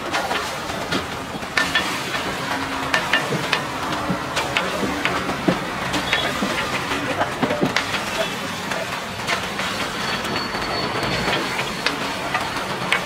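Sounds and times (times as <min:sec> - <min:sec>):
batter sizzling on griddle: 0:00.0 - 0:13.0
steel ladle clinking: 0:01.6 - 0:08.4.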